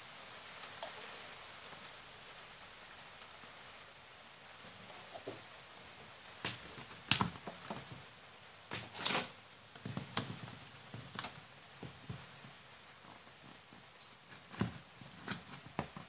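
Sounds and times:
handling clicks and knocks: 6.4s - 8.1s, 8.7s - 12.5s.

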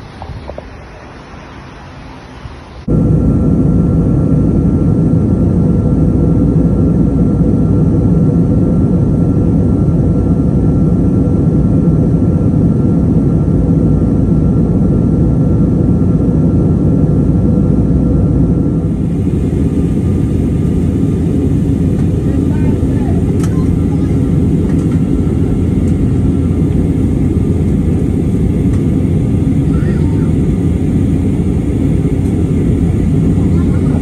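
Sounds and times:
faint steady whine: 0.0s - 34.0s
jet airliner cabin noise: 0.0s - 34.0s.

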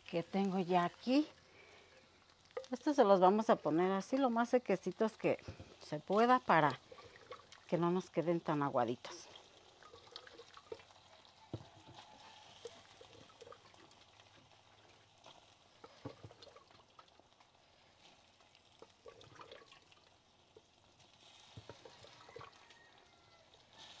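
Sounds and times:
faint sizzle: 0.0s - 24.0s
beans plopping: 0.3s - 17.1s.

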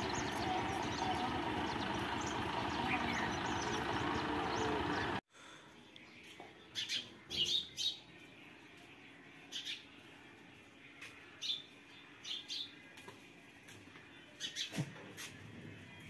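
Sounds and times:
small birds chirping: 0.0s - 5.2s.

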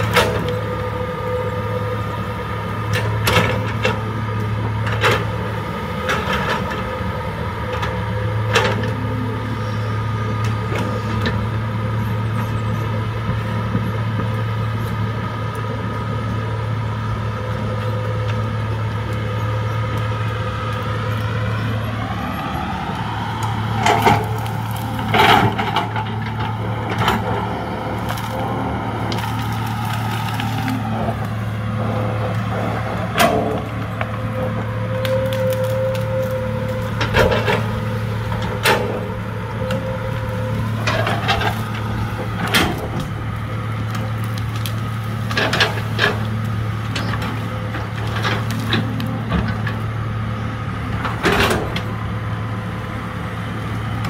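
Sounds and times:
excavator diesel engine running: 0.0s - 54.0s
wood snapping and splintering: 22.9s - 49.7s.

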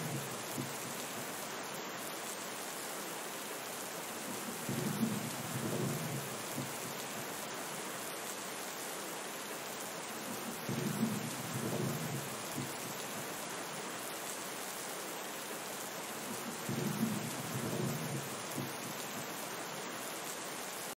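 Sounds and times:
thunder rumbles: 0.0s - 1.1s, 4.3s - 7.0s, 10.3s - 13.2s, 16.3s - 19.3s
rain falling: 0.0s - 21.0s.

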